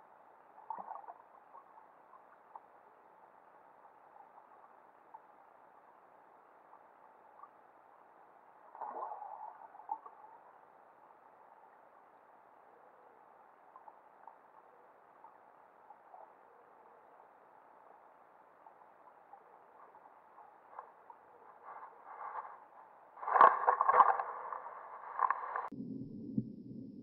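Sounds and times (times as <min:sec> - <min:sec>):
low underwater hiss: 0:00.0 - 0:26.8
faint clicks: 0:18.6 - 0:25.7.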